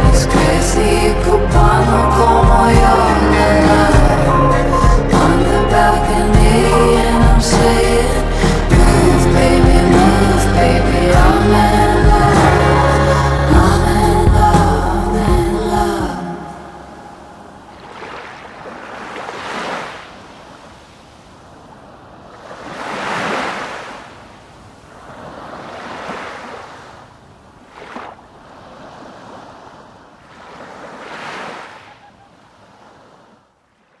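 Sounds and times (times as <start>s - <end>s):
ocean waves surging: 0.0s - 34.0s.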